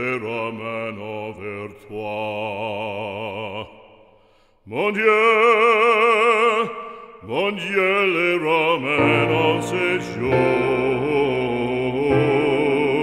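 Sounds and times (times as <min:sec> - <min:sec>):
operatic solo singing: 0:04.7 - 0:13.0.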